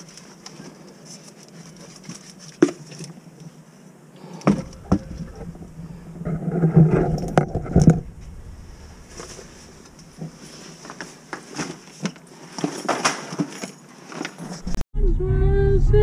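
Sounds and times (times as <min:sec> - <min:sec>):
steady low hum: 0:04.0 - 0:11.3
rustling and bumping: 0:04.5 - 0:14.7.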